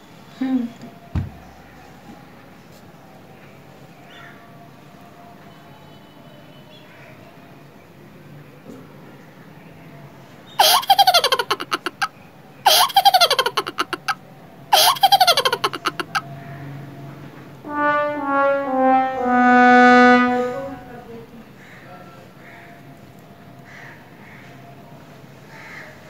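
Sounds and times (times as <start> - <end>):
laughter sound effect: 10.6 - 12.1, 12.7 - 14.2, 14.8 - 16.2
sad trombone effect: 17.6 - 21.2.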